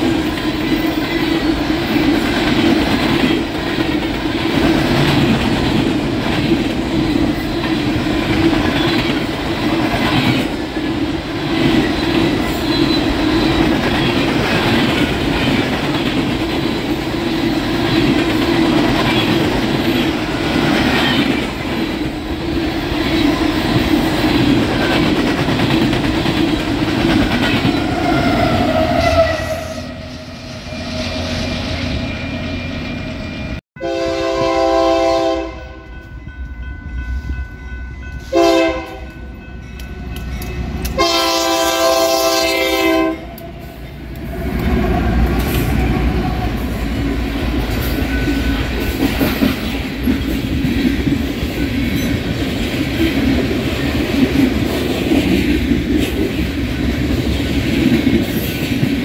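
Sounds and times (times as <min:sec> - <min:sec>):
train wheels clattering on rails: 0:00.0 - 0:28.6, 0:43.3 - 0:59.0
locomotive air horn: 0:27.9 - 0:31.6, 0:33.8 - 0:35.9, 0:38.3 - 0:39.2, 0:41.0 - 0:43.4.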